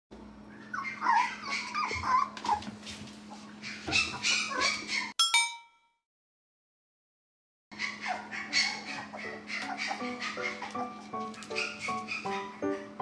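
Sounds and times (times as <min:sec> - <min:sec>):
dogs whining and whimpering: 0:00.5 - 0:05.1, 0:07.8 - 0:12.9
bright chime: 0:05.2 - 0:05.9.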